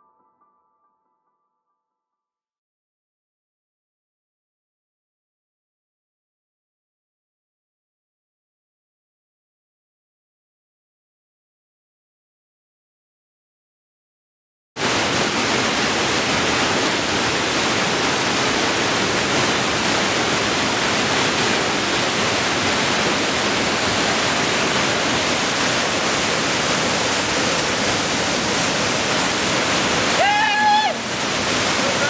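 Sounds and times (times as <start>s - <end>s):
whitewater rapids rushing: 14.8s - 32.0s.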